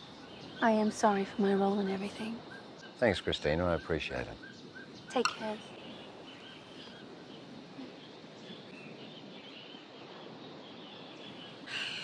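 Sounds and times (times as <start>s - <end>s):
background hiss: 0.0s - 12.0s
faint bird chirps: 0.0s - 12.0s.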